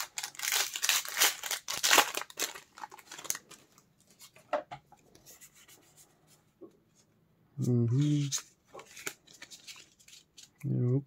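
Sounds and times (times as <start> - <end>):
foil wrapper crinkling and tearing: 0.0 - 3.6.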